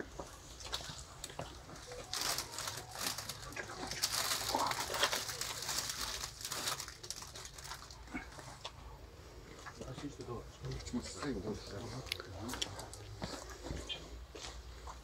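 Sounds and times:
cellophane crinkling: 0:00.8 - 0:08.6.

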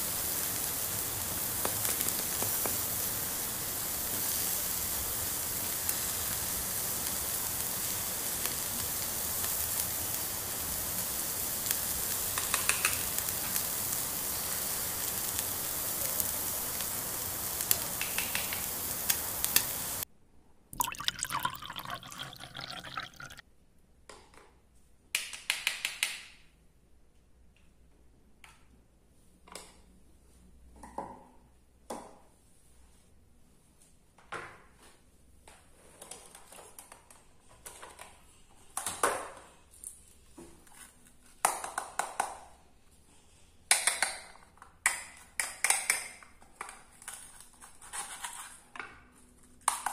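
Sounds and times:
food sizzling in a pan: 0:00.0 - 0:20.0, 0:20.8 - 0:23.4.

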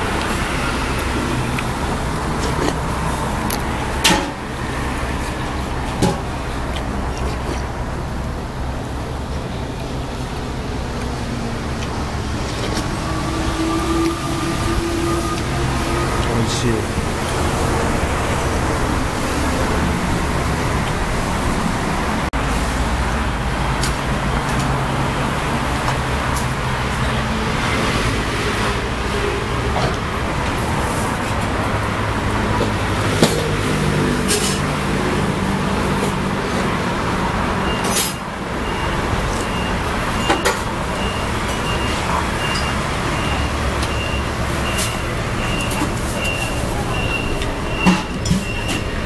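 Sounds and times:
heavy vehicle engine running: 0:00.0 - 0:49.0
roadside traffic noise: 0:00.0 - 0:49.0.

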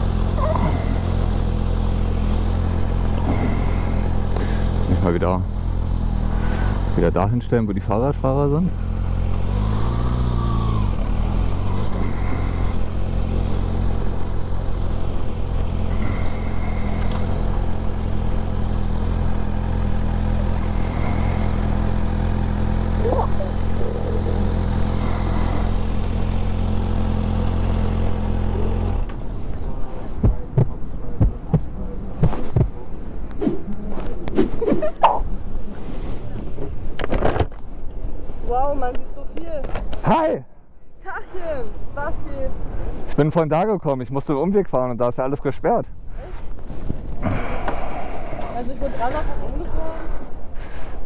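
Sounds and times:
motorcycle engine running: 0:00.0 - 0:33.0.

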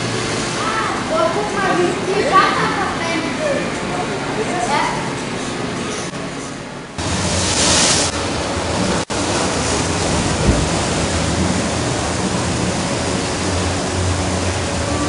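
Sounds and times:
water flowing in channel: 0:00.0 - 0:15.0
boat splashing through water: 0:07.0 - 0:15.0.

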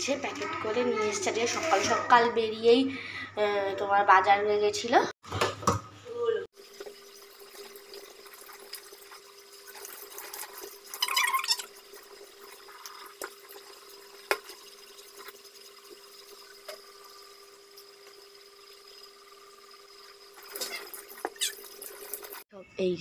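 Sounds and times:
tap water running into sink: 0:06.5 - 0:22.4.

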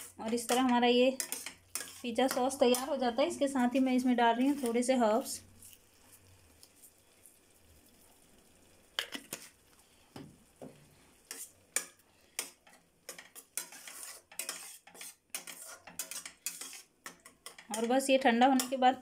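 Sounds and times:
metal spatula scraping a pan: 0:00.0 - 0:06.3, 0:09.0 - 0:09.6, 0:11.0 - 0:19.0.

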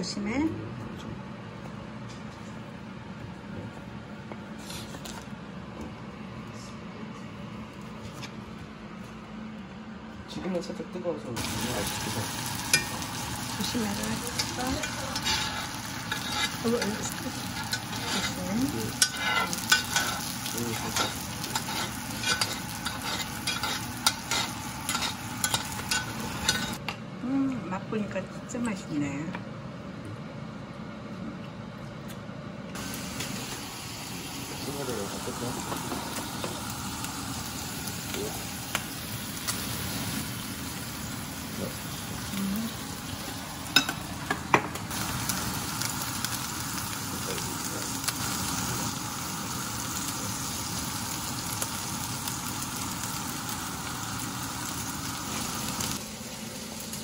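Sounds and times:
steak sizzling in butter: 0:11.4 - 0:26.8, 0:32.8 - 0:57.0.

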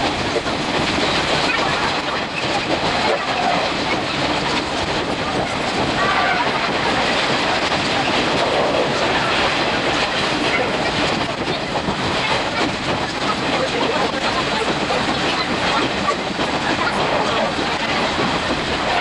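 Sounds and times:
rapid train clatter: 0:00.0 - 0:19.0
train wheels rumbling on rail: 0:00.0 - 0:19.0.

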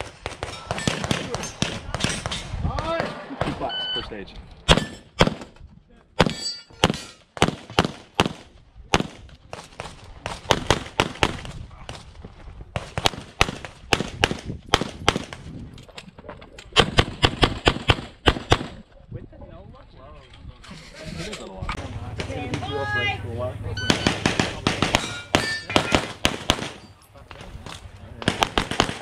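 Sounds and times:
rapid pistol fire: 0:16.8 - 0:18.8, 0:23.9 - 0:25.0, 0:25.8 - 0:26.8, 0:28.2 - 0:29.0.

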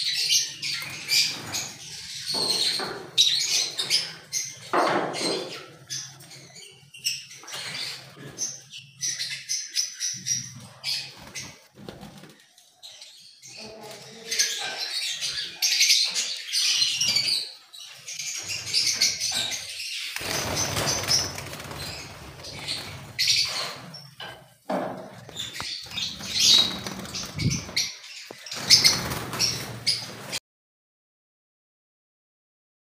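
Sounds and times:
wings flapping: 0:11.1 - 0:12.4, 0:20.2 - 0:23.8, 0:25.4 - 0:30.4
lovebirds chirping shrilly: 0:13.4 - 0:24.2, 0:25.3 - 0:30.4.

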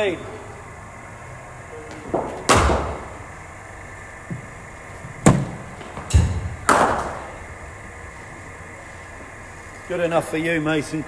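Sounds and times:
cricket ball knocks echoing: 0:05.3 - 0:07.3.

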